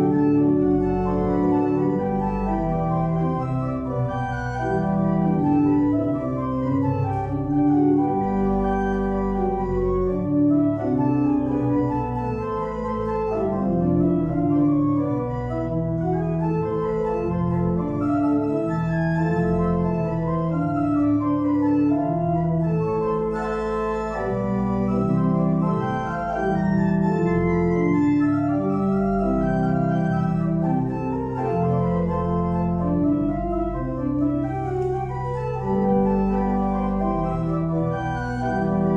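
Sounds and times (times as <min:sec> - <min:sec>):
deep organ bass line: 0:00.0 - 0:38.9
organ playing full chords: 0:00.0 - 0:38.9.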